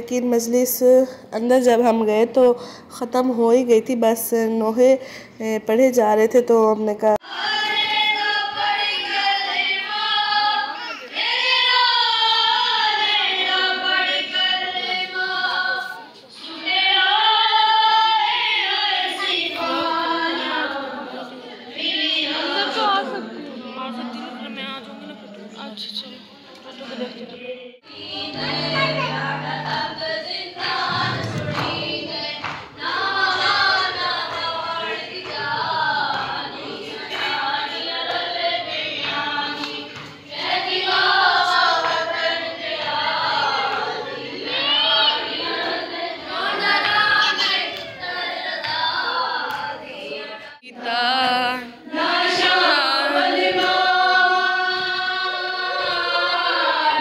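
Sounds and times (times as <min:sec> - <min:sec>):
group chanting a lament: 0:27.9 - 0:57.0.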